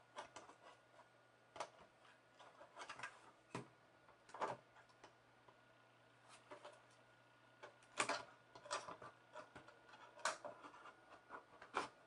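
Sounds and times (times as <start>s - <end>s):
computer case clicks and scrapes: 6.3s - 7.0s, 7.7s - 12.0s.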